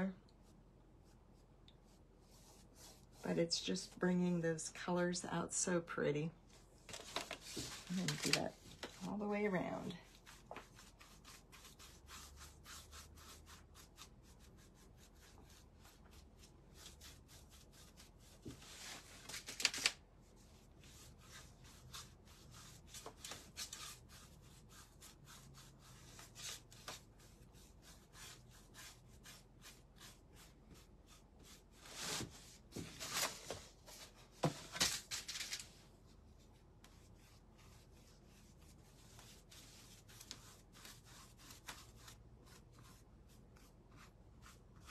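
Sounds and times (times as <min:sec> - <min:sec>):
paintbrush scrubbing on board: 0:01.0 - 0:03.9, 0:07.5 - 0:19.0, 0:20.5 - 0:32.4, 0:36.8 - 0:44.9.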